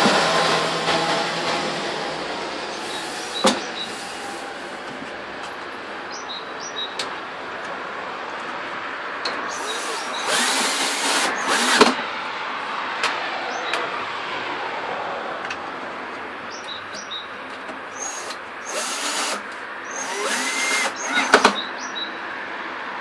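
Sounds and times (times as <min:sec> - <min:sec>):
drill motor whine: 0:09.5 - 0:11.8, 0:18.0 - 0:21.6
drill clutch clicks: 0:18.0 - 0:21.6.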